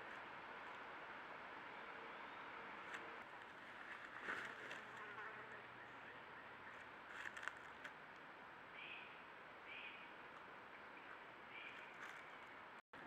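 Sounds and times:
fly buzzing: 4.8 - 5.6.

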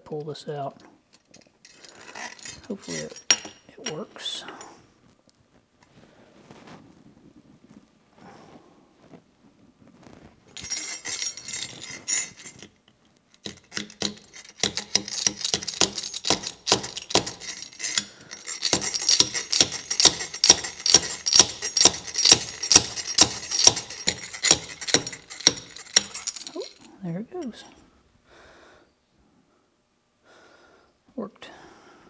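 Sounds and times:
metal-on-metal hammer clinks: 1.2 - 4.7, 10.6 - 27.7.

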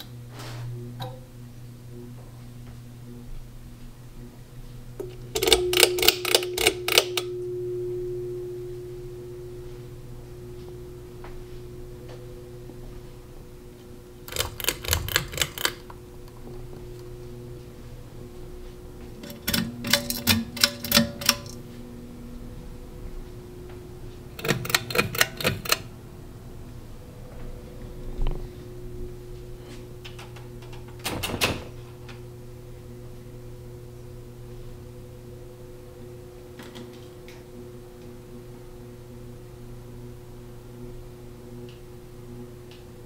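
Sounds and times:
ceiling fan motors humming: 0.0 - 43.0
rapid sharp clicking: 14.3 - 15.9.

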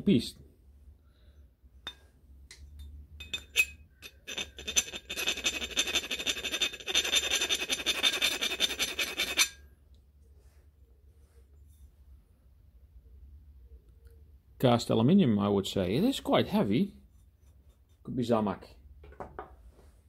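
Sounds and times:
pliers rasping on metal wheel: 3.2 - 9.6.

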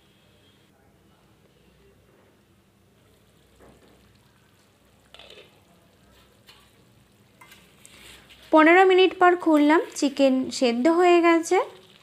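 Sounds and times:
chicken simmering and sizzling: 2.9 - 12.0.

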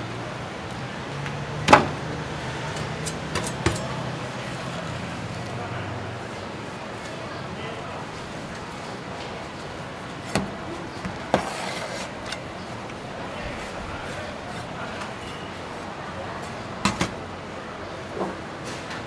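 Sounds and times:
market chatter: 0.0 - 19.0.

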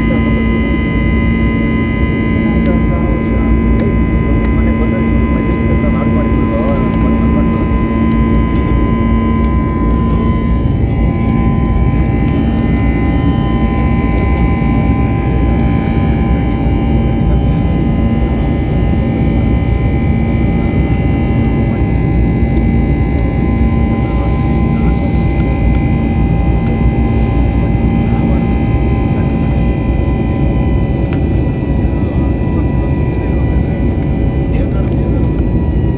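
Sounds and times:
airliner cabin engine drone: 0.0 - 35.9
steady whining tones: 0.0 - 35.9.

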